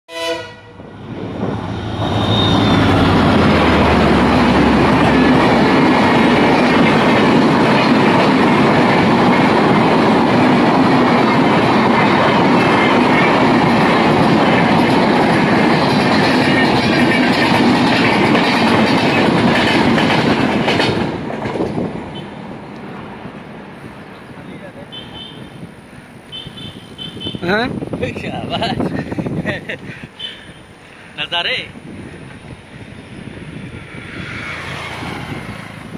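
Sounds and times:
locomotive horn: 0.1 - 0.9, 24.9 - 25.6, 26.3 - 27.4
train wheels rushing on rails: 0.1 - 35.9.

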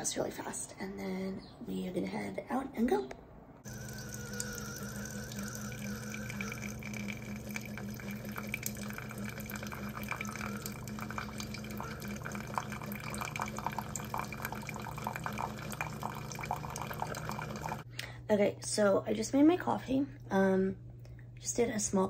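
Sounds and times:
coffee maker pump humming: 3.6 - 17.9
faint high whine: 3.7 - 15.5
coffee pouring into ceramic mug: 3.7 - 17.8.

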